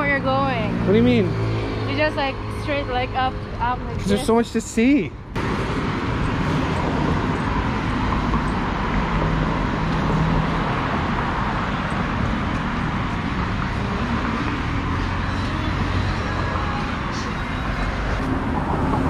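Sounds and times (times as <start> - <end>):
roadside traffic noise: 0.0 - 19.0
vehicle engines humming: 0.0 - 19.0.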